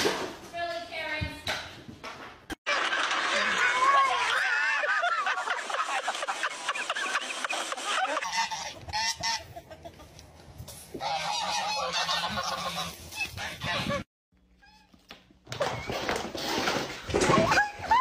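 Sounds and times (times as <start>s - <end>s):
geese honking: 7.5s - 10.0s, 11.0s - 14.0s.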